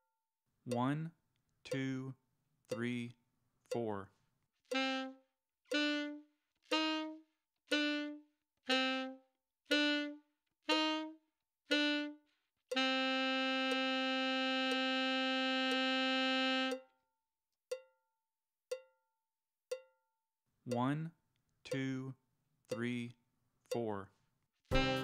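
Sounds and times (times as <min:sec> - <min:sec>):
metronome ticking: 0:00.7 - 0:04.1, 0:04.7 - 0:08.8, 0:11.7 - 0:16.9, 0:17.7 - 0:18.0, 0:18.7 - 0:19.0, 0:19.7 - 0:20.0, 0:20.7 - 0:24.1
alto saxophone notes: 0:04.7 - 0:16.8, 0:24.7 - 0:25.0.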